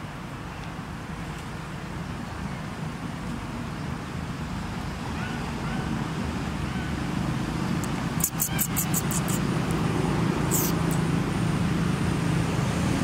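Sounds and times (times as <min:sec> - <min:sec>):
faint short chirps: 0:08.2 - 0:09.4, 0:10.5 - 0:11.0.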